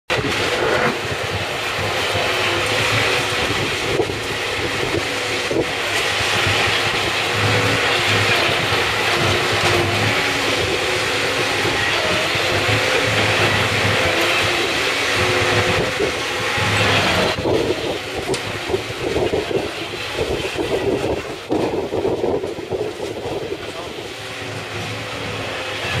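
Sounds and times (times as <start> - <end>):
low diesel hum: 0.1 - 26.0
shredder chewing tyres: 0.1 - 26.0.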